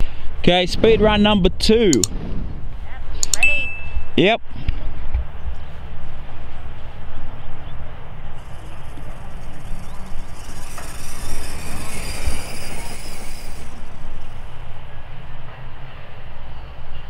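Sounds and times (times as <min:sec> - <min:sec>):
steady low rumble: 0:00.0 - 0:17.0
electric motor whine: 0:08.3 - 0:15.0.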